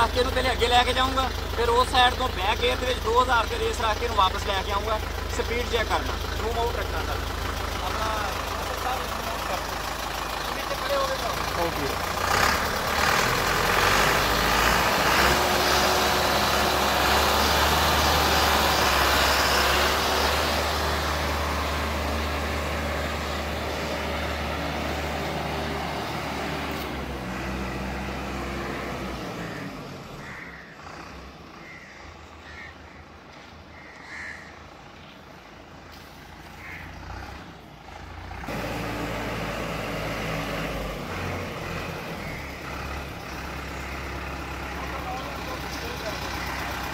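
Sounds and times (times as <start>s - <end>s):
tractor diesel engine running: 0.0s - 46.9s.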